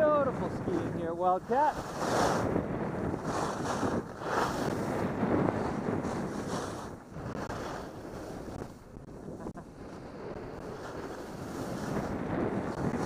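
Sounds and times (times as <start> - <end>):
wind rushing over microphone: 0.0 - 13.0
skis hissing over snow: 1.5 - 8.8, 10.2 - 13.0.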